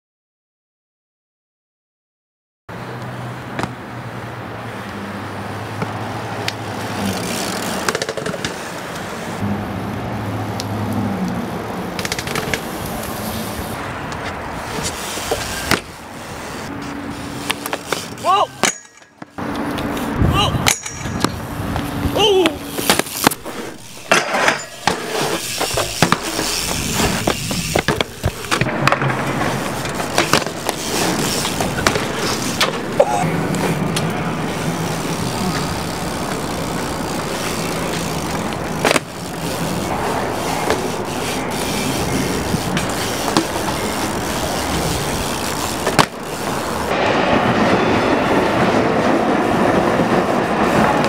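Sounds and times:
bike tyres rolling on concrete: 0:02.9 - 0:51.0
bike landing with sharp clacks: 0:05.8 - 0:09.4, 0:12.0 - 0:13.2, 0:14.0 - 0:47.0
bike pegs grinding on rails: 0:05.8 - 0:09.4, 0:11.9 - 0:47.0.

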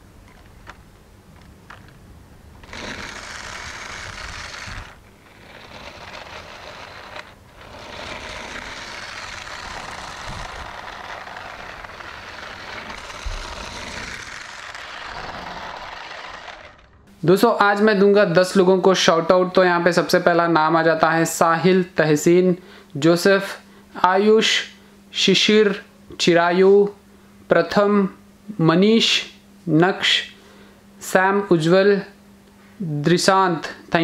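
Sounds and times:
toy truck electric motors whirring: 0:02.6 - 0:17.0.

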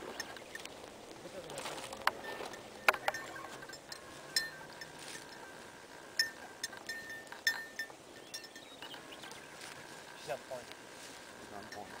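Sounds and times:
light metallic jingling clinks: 0:01.9 - 0:10.6, 0:11.4 - 0:12.0.

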